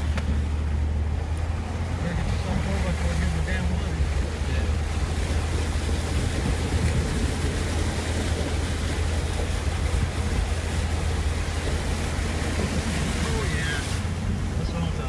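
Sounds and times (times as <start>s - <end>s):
engine and drivetrain drone: 0.0s - 15.0s
water splashing: 0.0s - 15.0s.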